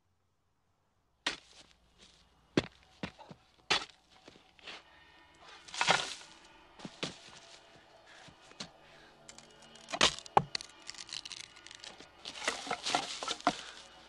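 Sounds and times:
sharp cracks and clicks: 9.3 - 12.0.

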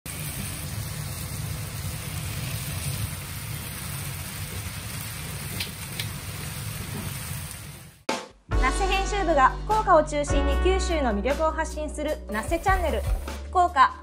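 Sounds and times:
food sizzling in a pan: 0.0 - 8.1, 12.3 - 13.3
gas burner flame rumble: 0.1 - 8.0.

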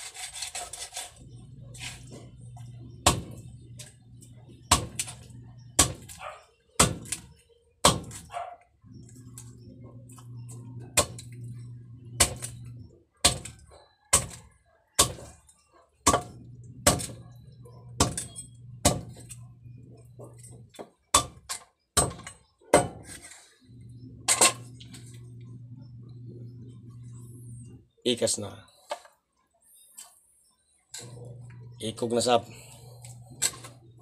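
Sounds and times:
knife chopping on wooden block: 3.0 - 3.4, 4.7 - 5.2, 5.8 - 6.2, 6.8 - 8.2, 13.2 - 14.4, 15.0 - 15.3, 16.0 - 17.2, 18.0 - 19.2.

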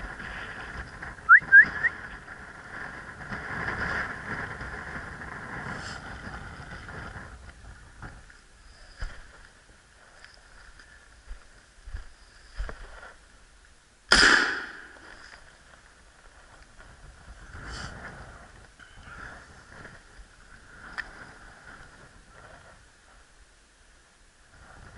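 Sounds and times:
loud sharp bang: 14.1 - 15.0.

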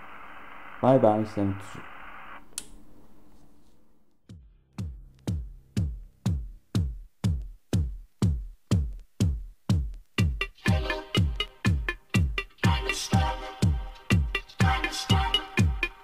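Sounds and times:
drum machine kick drum: 4.3 - 16.0
electronic dance music: 4.8 - 16.0.

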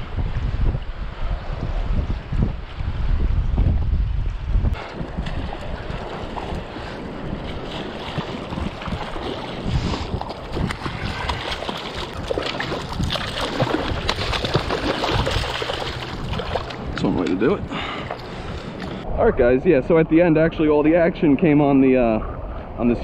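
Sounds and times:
wind on microphone: 0.0 - 23.0
surf water sloshing: 4.8 - 19.0
fish splashing at surface: 5.2 - 17.0.

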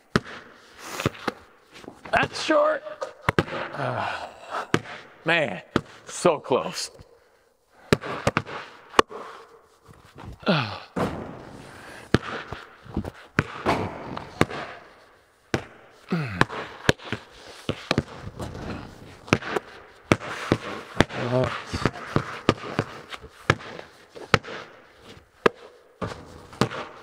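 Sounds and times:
basketballs bouncing on concrete: 0.0 - 6.1, 7.8 - 9.2, 10.4 - 27.0
balls banging off backboard and rim: 0.1 - 3.8, 4.7 - 5.1, 7.8 - 9.2, 11.0 - 24.8, 25.4 - 27.0.

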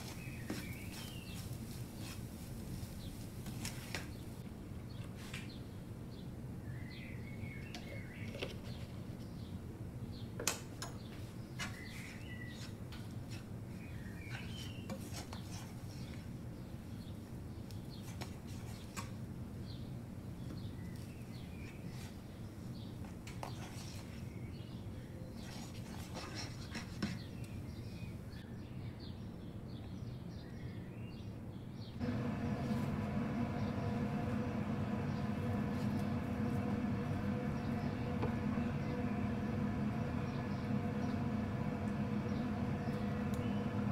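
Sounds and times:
spatula scraping a pan: 25.4 - 27.2
steady multi-tone hum: 32.0 - 43.9.

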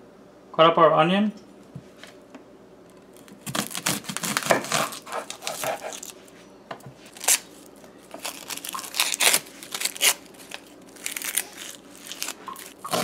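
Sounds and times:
onion skin crackling and tearing: 2.9 - 6.2, 7.1 - 13.0
knife cutting onion: 3.3 - 6.2, 11.0 - 13.0.

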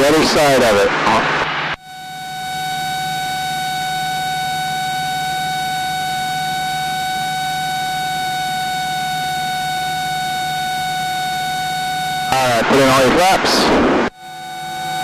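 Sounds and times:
airplane engine and propeller drone: 0.0 - 15.0
constant high-pitched whine: 0.0 - 15.0.

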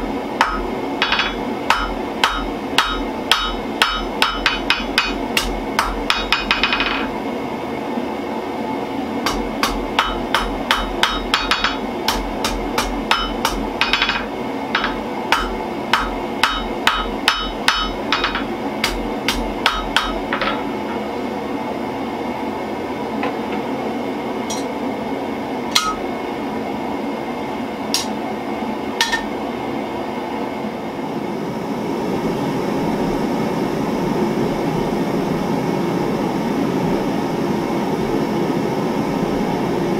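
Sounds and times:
steady background noise: 0.0 - 39.9
hammer striking steel on anvil: 0.4 - 7.1, 9.2 - 21.0, 24.5 - 24.8, 25.7 - 26.0, 27.9 - 28.2, 29.0 - 29.3.

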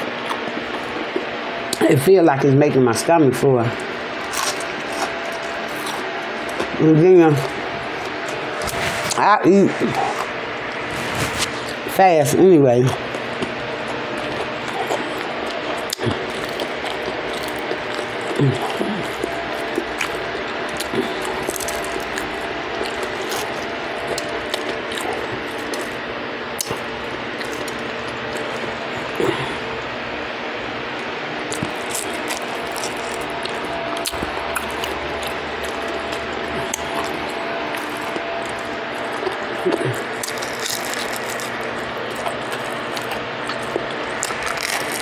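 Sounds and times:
crackles and crunches of fried fish: 3.8 - 6.7, 13.0 - 26.0, 31.4 - 45.0.

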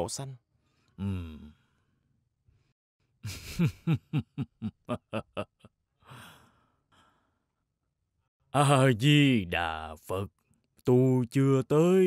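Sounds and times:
man laughing heartily: 3.2 - 5.7.

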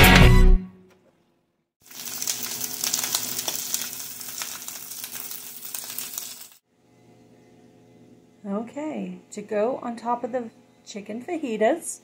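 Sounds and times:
vegetables sizzling in a frying pan: 1.8 - 6.6.

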